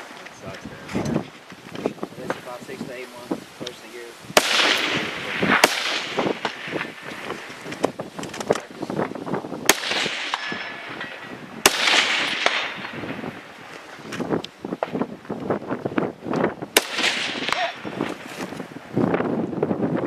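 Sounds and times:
rifle shots: 0:04.3 - 0:07.1, 0:09.6 - 0:13.3, 0:16.7 - 0:18.3
gunshot echo: 0:04.4 - 0:07.0, 0:09.6 - 0:13.3, 0:16.8 - 0:18.1.

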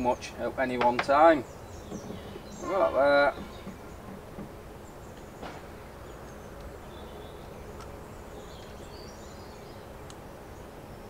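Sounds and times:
faint bird chirps: 0:00.0 - 0:11.0
small clicks: 0:10.0 - 0:10.2.

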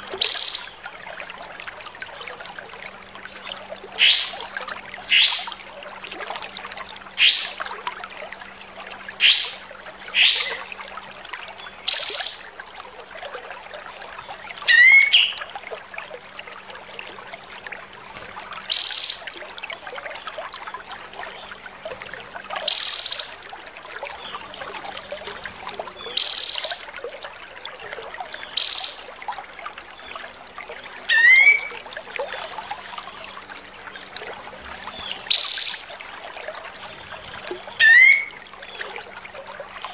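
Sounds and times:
bird singing harsh sweeping calls: 0:35.3 - 0:35.9.

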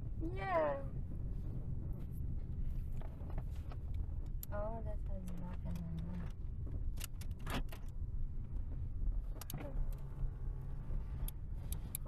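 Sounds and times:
car cabin engine hum: 0:00.0 - 0:12.0.

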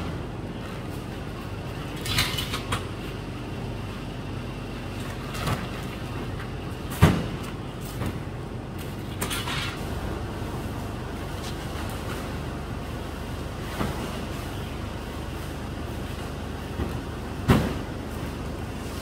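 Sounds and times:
steady background noise: 0:00.0 - 0:19.0
bales thumping onto steel truck bed: 0:06.8 - 0:08.3, 0:16.7 - 0:18.5.

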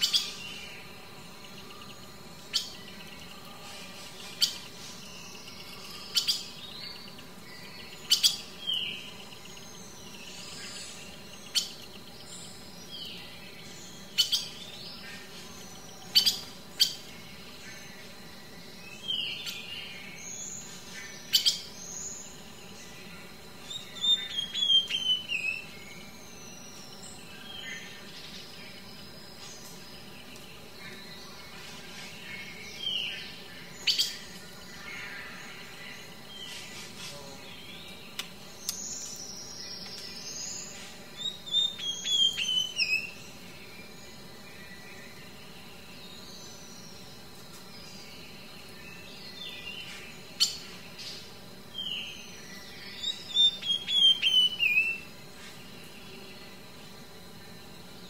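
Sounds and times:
birds chirping and calling: 0:00.0 - 0:58.0
sharp clicks: 0:38.1 - 0:39.2.

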